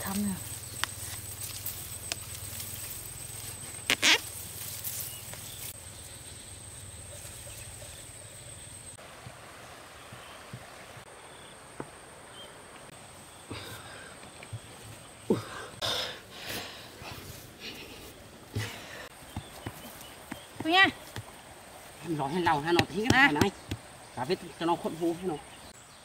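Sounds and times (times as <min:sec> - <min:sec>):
high-pitched insect whine: 0:00.0 - 0:09.0.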